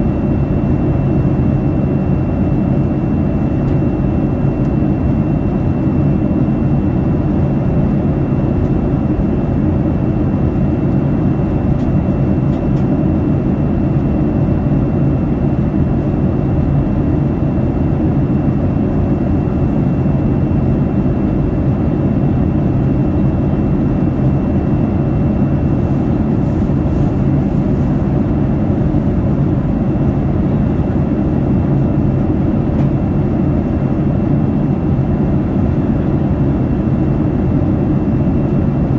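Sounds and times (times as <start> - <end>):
aircraft engine and airflow noise: 0.0 - 38.9.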